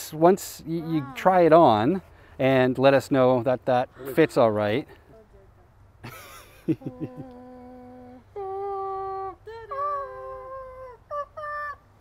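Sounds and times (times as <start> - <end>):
person humming: 6.7 - 11.8.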